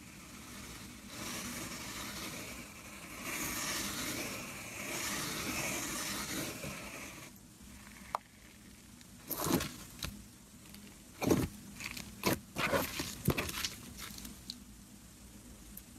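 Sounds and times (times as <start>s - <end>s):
fingers rubbing gritty slime: 0.0s - 7.3s.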